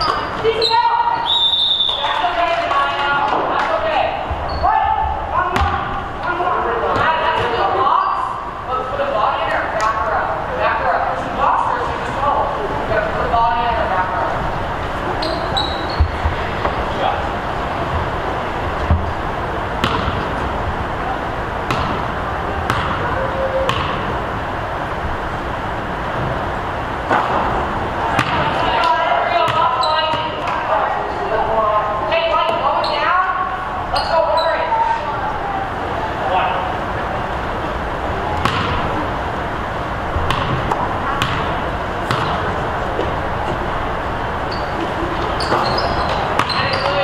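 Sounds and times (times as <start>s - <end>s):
gym background noise: 0.0s - 47.0s
basketball bouncing on gym floor: 5.5s - 5.9s, 19.8s - 20.3s, 21.7s - 24.2s, 28.1s - 28.6s, 29.4s - 30.6s, 38.4s - 38.9s, 40.2s - 42.5s, 45.4s - 47.0s.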